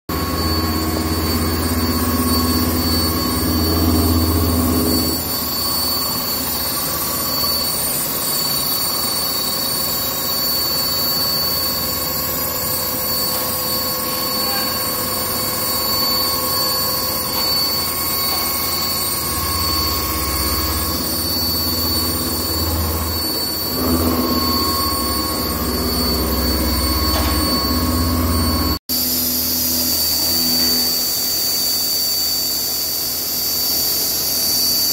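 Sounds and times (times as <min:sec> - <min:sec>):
low machine hum: 0:00.1 - 0:06.0, 0:14.0 - 0:29.2
milling machine whine: 0:00.1 - 0:34.9.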